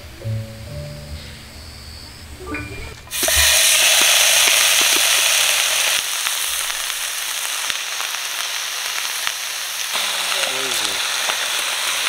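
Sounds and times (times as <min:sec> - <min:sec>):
beef sizzling with pops: 0:03.0 - 0:12.0.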